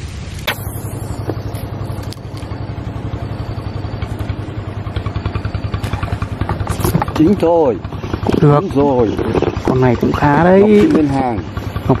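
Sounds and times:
small engine running: 0.2s - 12.0s
sharp click: 0.4s - 1.4s.

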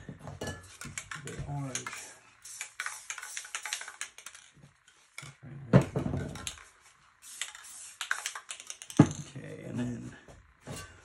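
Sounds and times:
spray can handling clicks: 0.9s - 4.5s, 7.2s - 9.0s
spray can hissing: 1.8s - 4.5s, 6.4s - 9.0s.

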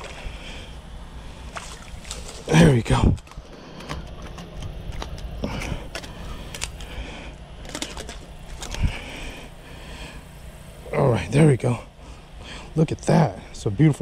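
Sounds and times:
rustling: 1.5s - 2.6s.

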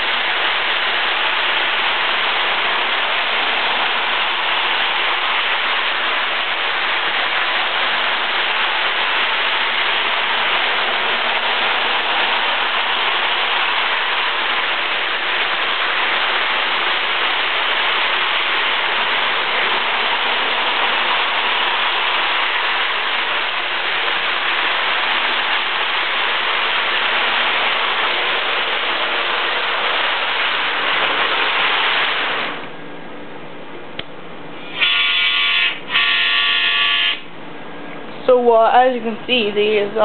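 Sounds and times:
model train running on track: 0.0s - 32.7s, 34.6s - 37.3s
model train horn blasts: 34.7s - 37.3s.

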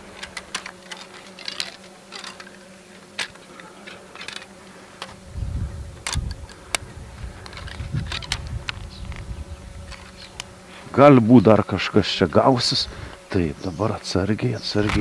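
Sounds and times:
wooden frames clicking and scraping: 0.0s - 5.2s, 6.0s - 10.6s
honeybees humming: 0.0s - 15.0s.

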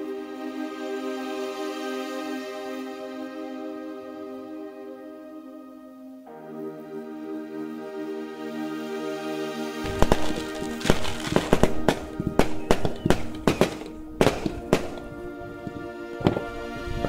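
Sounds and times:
background music: 0.0s - 17.0s
fireworks banging: 9.9s - 16.5s.

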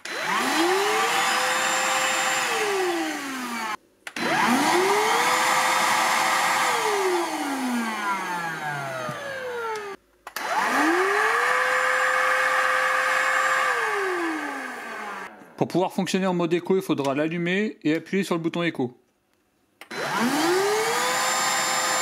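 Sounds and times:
stick vacuum motor whining: 0.0s - 15.4s, 19.8s - 22.0s.

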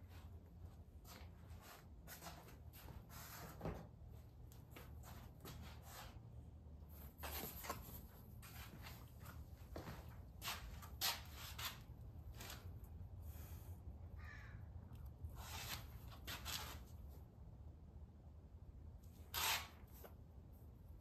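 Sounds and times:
rustles and light knocks: 0.0s - 6.2s, 6.9s - 12.8s
low steady hum: 16.8s - 21.0s.

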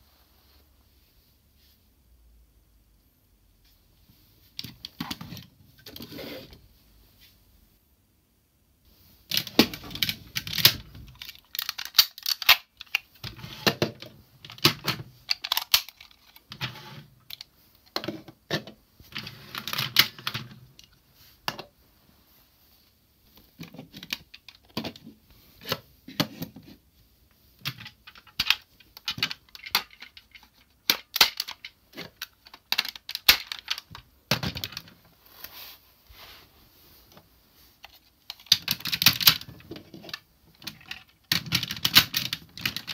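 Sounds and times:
plastic toy parts clicking: 9.3s - 18.0s, 27.6s - 34.9s, 37.8s - 42.9s.

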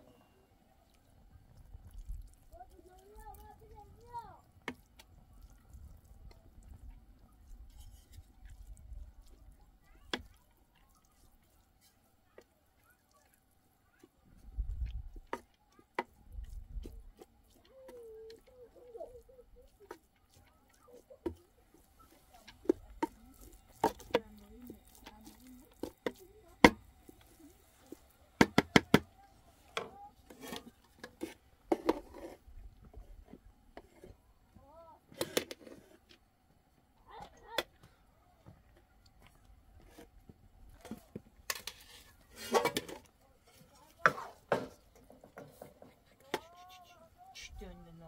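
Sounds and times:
wooden spatula knocking metal pot: 22.2s - 29.1s.

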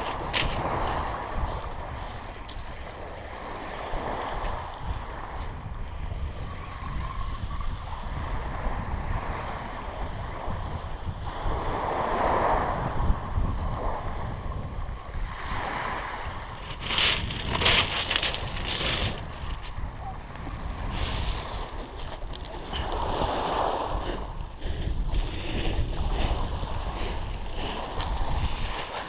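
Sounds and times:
waves washing up shingle beach: 0.0s - 5.4s, 15.1s - 29.0s
wind buffeting microphone: 0.0s - 29.0s.

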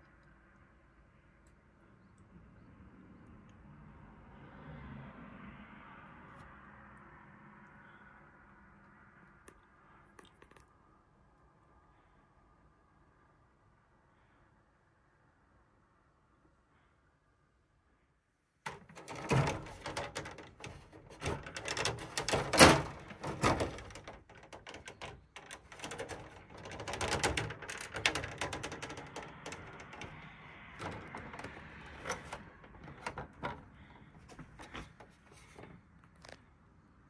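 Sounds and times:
handling clicks and knocks: 18.6s - 36.4s.

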